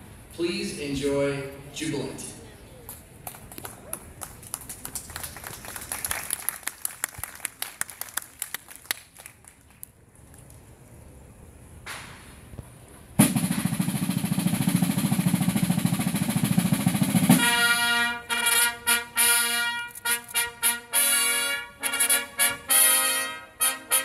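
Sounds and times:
field drum roll: 13.2 - 18.6
brass trumpet fanfare: 17.0 - 24.0.

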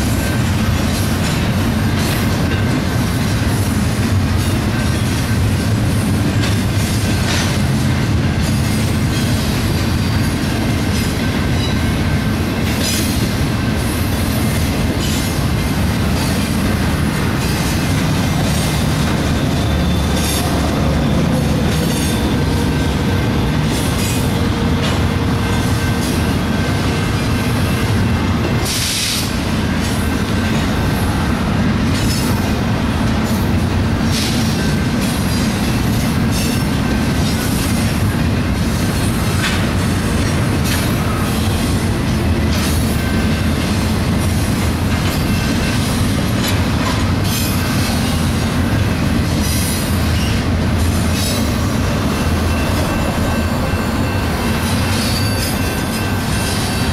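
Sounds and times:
freight train wheels rumbling on rail: 0.0 - 56.9
clicks from train trucks: 0.3 - 3.4, 4.2 - 7.8, 8.4 - 13.4, 23.7 - 26.3, 31.8 - 32.5, 33.1 - 48.6.

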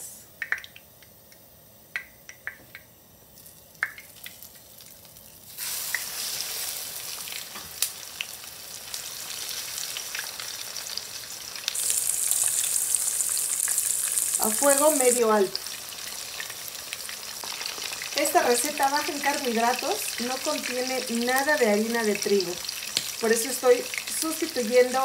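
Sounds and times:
hot lard popping: 1.9 - 2.9, 3.6 - 6.1, 11.6 - 15.2, 22.8 - 23.2
cutlet frying sizzle: 2.0 - 25.0.

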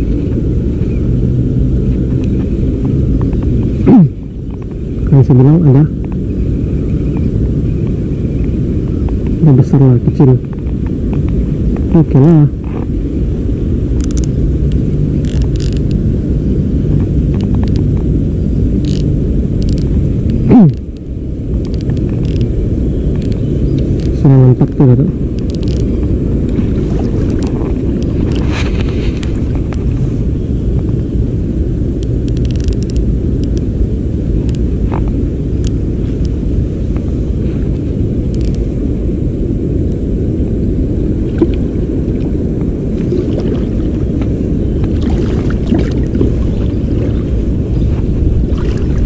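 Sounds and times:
faint ticks: 14.0 - 16.0, 17.3 - 18.0, 18.8 - 22.5, 23.2 - 24.2, 25.4 - 25.9, 32.0 - 33.7, 34.4 - 37.1, 38.3 - 38.6
stream water flowing: 25.4 - 29.5, 41.2 - 49.0.

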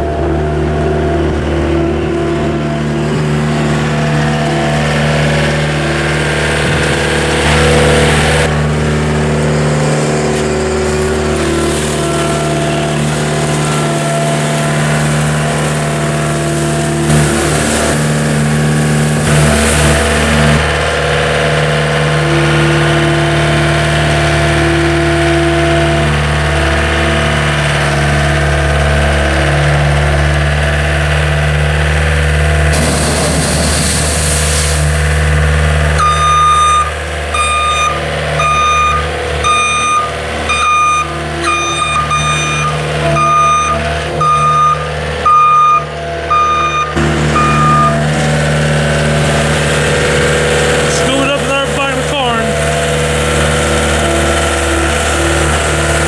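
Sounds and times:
diesel engine running and revving: 0.0 - 56.0
bucket rattling through corn: 9.8 - 20.9, 32.7 - 35.5.

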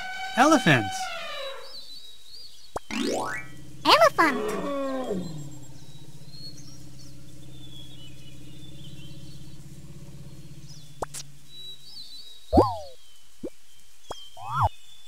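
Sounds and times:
elephant call: 0.0 - 2.0, 2.9 - 11.5
faint birdsong: 0.0 - 15.0.

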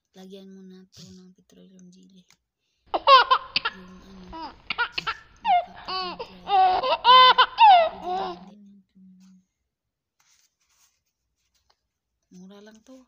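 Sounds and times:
high-pitched laughter: 3.0 - 8.5.

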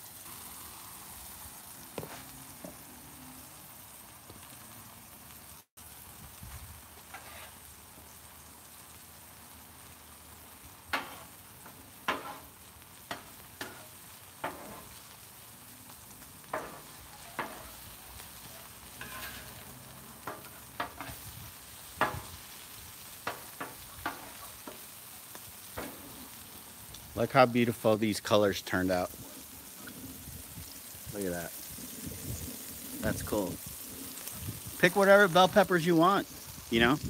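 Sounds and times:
vegetables sizzling on a griddle: 0.0 - 37.0
utensil clacking on griddle: 7.1 - 7.6, 10.9 - 15.2, 16.2 - 26.4.

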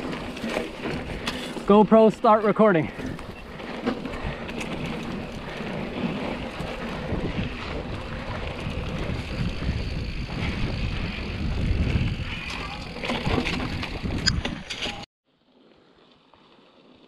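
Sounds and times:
bike rattling and ticking: 0.0 - 15.0
bike tyre rumble on dirt: 0.0 - 17.0
wind noise on microphone: 3.1 - 15.0.

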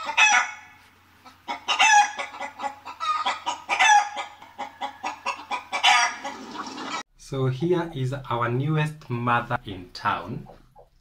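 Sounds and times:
chickens clucking: 0.0 - 7.0, 10.4 - 11.0
chickens squawking: 0.0 - 7.0.

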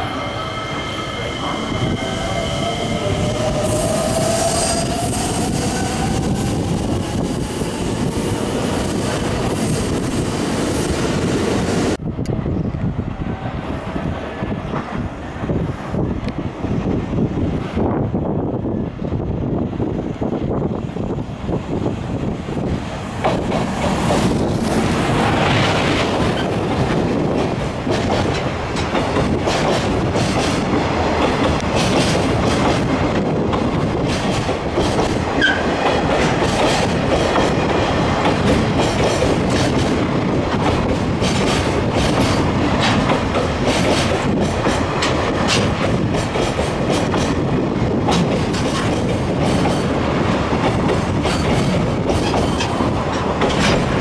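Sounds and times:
train wheels clicking on rails: 21.1 - 54.0.

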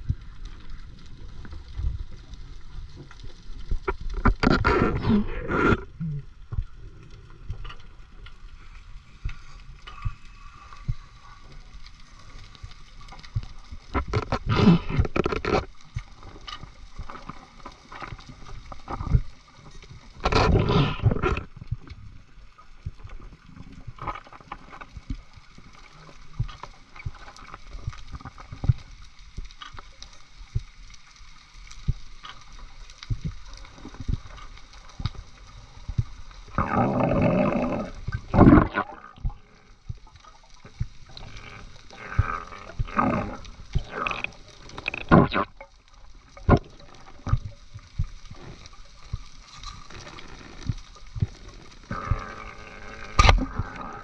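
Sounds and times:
faint underwater clicks and crackles: 0.0 - 54.0
low water rumble: 0.0 - 54.0.

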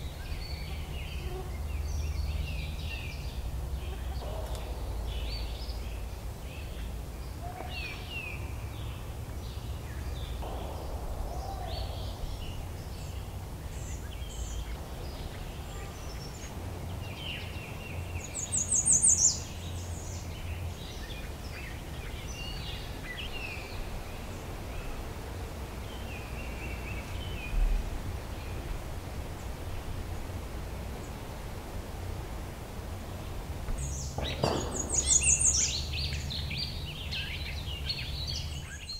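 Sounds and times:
birds chirping and singing: 0.0 - 25.0, 33.8 - 38.9
steady low rumble: 1.5 - 18.8
short low thump: 10.4 - 13.7.

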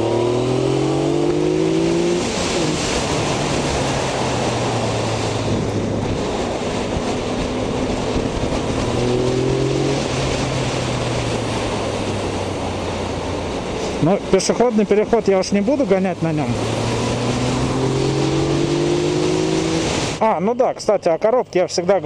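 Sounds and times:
motorcycle engine revving: 0.0 - 13.8, 15.5 - 20.2
wind rush on microphone: 0.0 - 14.0.

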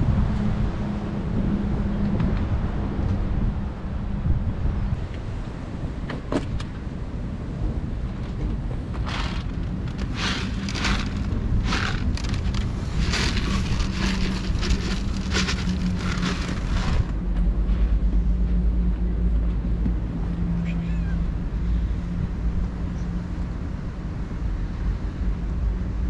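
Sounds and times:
wind rumble on microphone: 0.0 - 26.0
dry kibble rattling onto wood: 8.2 - 17.1.

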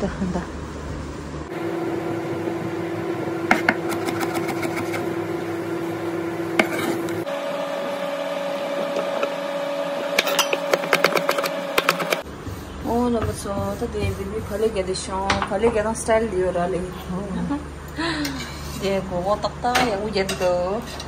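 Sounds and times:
steady hum: 0.0 - 21.0
knife chopping on wooden board: 3.5 - 5.0, 10.2 - 12.2.

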